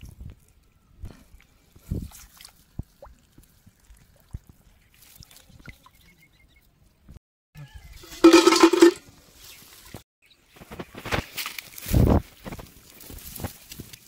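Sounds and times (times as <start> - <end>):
water splashing and dripping: 1.4 - 6.0.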